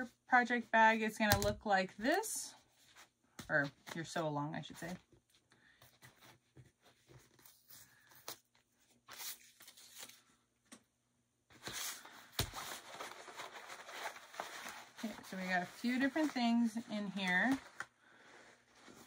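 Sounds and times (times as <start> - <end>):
paper and fabric rustling: 11.5 - 19.0.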